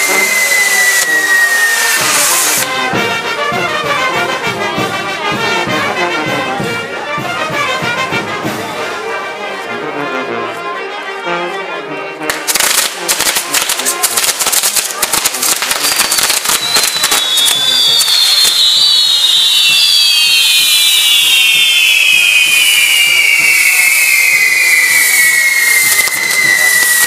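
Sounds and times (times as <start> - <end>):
sparks fizzing: 0.0 - 2.8, 12.3 - 27.0
fireworks whistles: 0.0 - 3.1, 12.5 - 27.0
fireworks crackling and popping: 0.0 - 6.8, 12.3 - 27.0.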